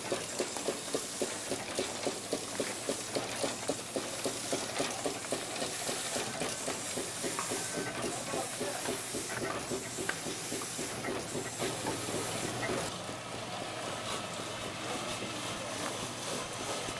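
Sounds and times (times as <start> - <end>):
steam engine beating: 0.0 - 12.9.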